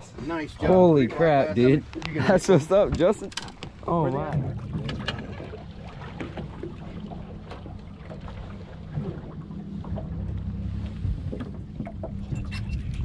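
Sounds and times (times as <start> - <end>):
boat motor idling: 0.0 - 13.0
wind on microphone: 10.7 - 13.0.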